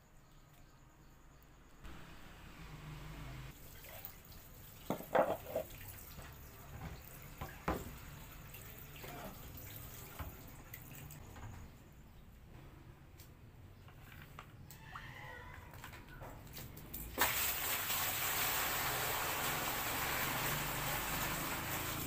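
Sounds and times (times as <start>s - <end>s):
water splashing onto concrete: 16.6s - 22.0s.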